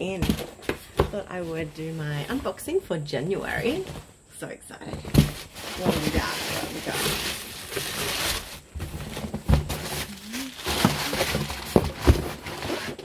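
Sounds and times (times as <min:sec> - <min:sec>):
paper packing rustling and crinkling: 0:04.9 - 0:13.0.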